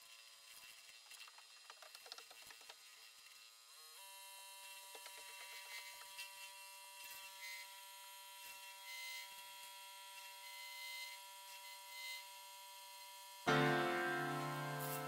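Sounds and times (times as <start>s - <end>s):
wood lathe motor whine: 2.9s - 15.0s
gouge cutting hiss: 13.5s - 15.0s.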